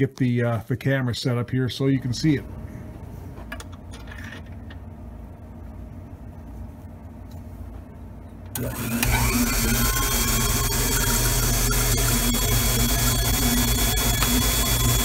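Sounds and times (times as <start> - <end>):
electric motor spinning up: 8.6 - 15.0.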